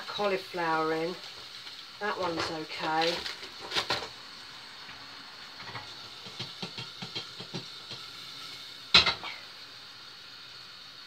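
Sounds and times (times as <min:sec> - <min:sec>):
light taps and clicks of cookware: 0:05.6 - 0:08.1.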